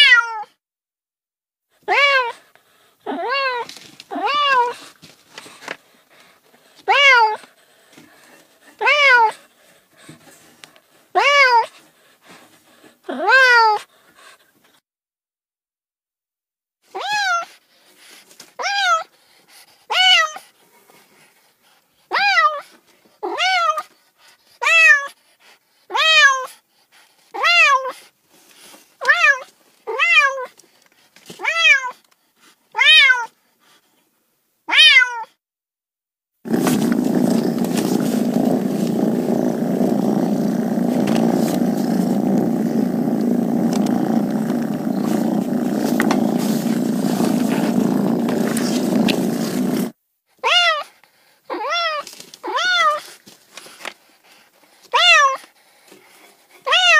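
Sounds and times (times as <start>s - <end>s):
cat meowing: 0.0s - 0.5s, 8.8s - 9.4s, 32.8s - 33.3s, 34.7s - 35.3s, 50.4s - 50.9s, 56.7s - 56.9s
kitten meows: 0.0s - 0.5s, 1.9s - 2.4s, 17.0s - 17.5s, 32.8s - 33.3s, 34.7s - 35.3s, 50.4s - 50.9s, 51.5s - 53.0s, 55.0s - 55.4s, 56.7s - 56.9s.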